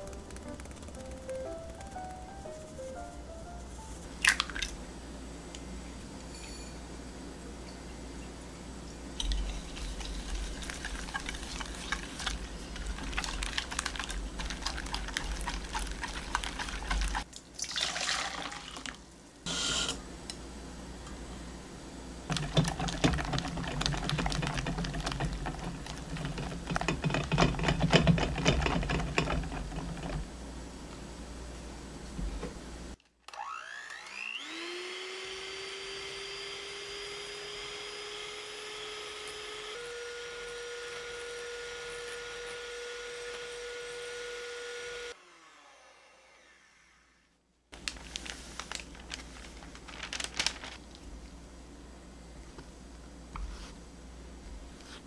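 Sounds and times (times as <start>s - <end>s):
whisk rattling against glass bowl: 9.2s - 17.3s, 22.3s - 30.3s
electric hand mixer whining: 33.4s - 45.8s.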